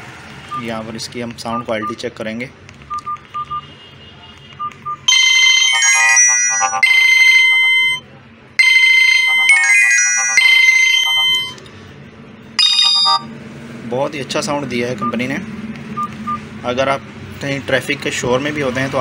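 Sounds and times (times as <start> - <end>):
phone ringtone melody: 5.1 - 11.7, 12.6 - 13.3
short key beeps: 12.6 - 13.3.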